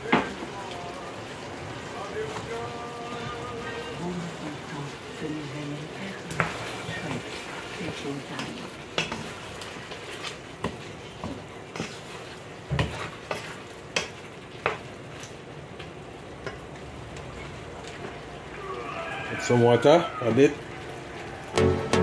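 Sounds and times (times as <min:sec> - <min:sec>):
meat sizzling: 0:00.0 - 0:22.0
wooden spoon scraping a pot: 0:06.3 - 0:14.1.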